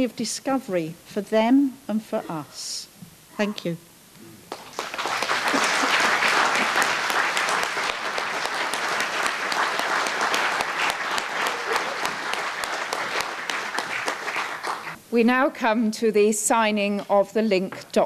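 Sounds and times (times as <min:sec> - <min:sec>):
audience applauding: 0:04.5 - 0:15.0.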